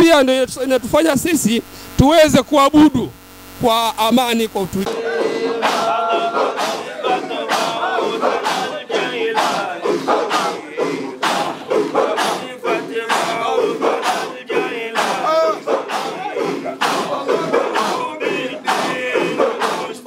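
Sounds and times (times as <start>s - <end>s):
crowd chanting: 4.8s - 20.0s.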